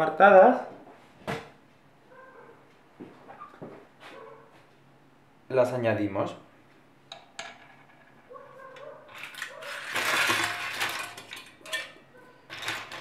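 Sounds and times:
clam shells clattering on metal: 9.1 - 13.0.

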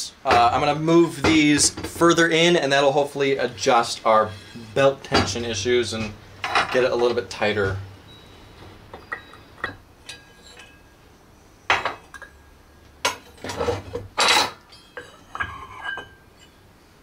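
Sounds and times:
metal parts clinking on workbench: 13.1 - 16.6.

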